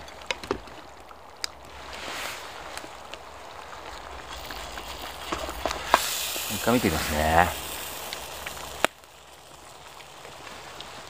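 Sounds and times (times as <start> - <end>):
stew simmering hiss: 4.0 - 11.0.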